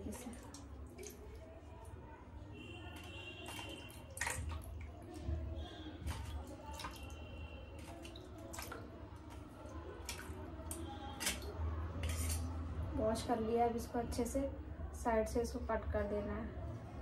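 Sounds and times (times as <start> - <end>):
water dripping and splashing: 0.0 - 12.6.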